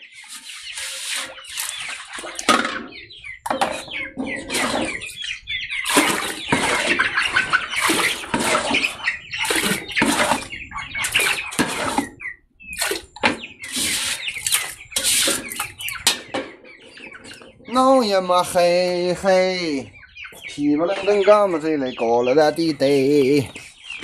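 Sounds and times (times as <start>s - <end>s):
water sloshing in metal pot: 0.3s - 2.8s, 5.8s - 12.1s, 12.7s - 16.1s.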